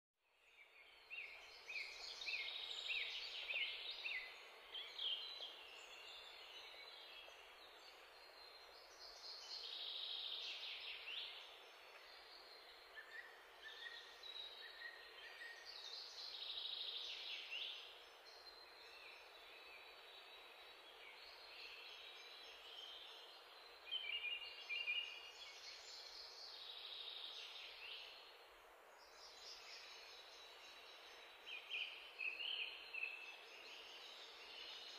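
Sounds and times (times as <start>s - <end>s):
birds chirping and trilling: 0.4s - 34.9s.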